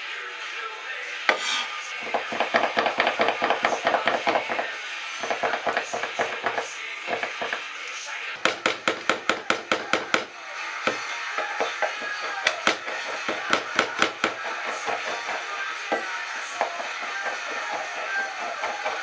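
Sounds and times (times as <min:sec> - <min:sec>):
knife chopping on wooden board: 0:01.3 - 0:04.6, 0:05.2 - 0:07.6, 0:08.4 - 0:10.3, 0:10.9 - 0:15.3.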